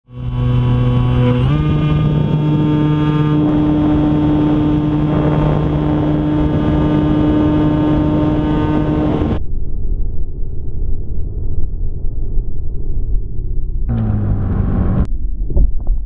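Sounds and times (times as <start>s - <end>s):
model plane motor humming: 0.1s - 9.4s
wind rushing over microphone: 1.5s - 13.2s.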